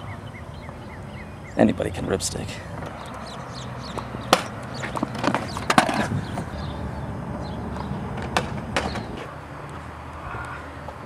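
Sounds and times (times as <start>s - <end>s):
small wheels rolling on concrete: 2.2s - 11.0s.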